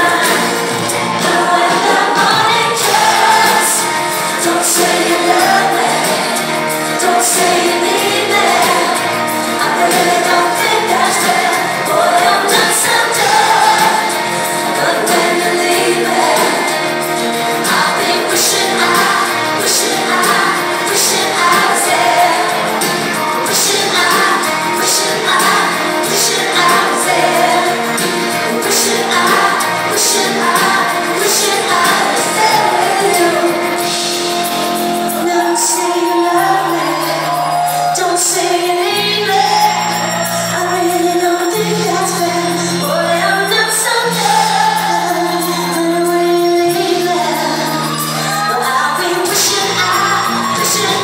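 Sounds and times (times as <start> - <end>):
woman singing: 0.0 - 33.9, 35.0 - 51.0
live pop-rock band: 0.0 - 51.0.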